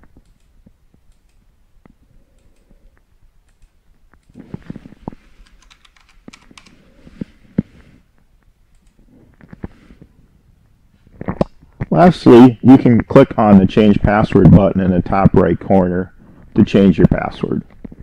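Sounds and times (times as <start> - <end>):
computer keyboard typing: 5.4 - 6.8.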